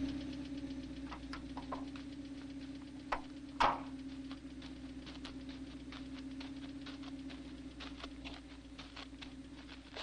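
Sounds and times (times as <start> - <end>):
car engine idling: 0.0 - 10.0
footsteps on stony ground: 3.1 - 10.0.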